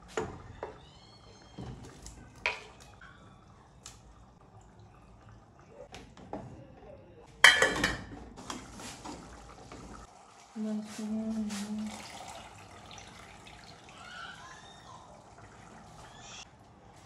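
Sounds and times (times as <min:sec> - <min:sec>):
dishes and utensils clinking: 0:07.4 - 0:08.3.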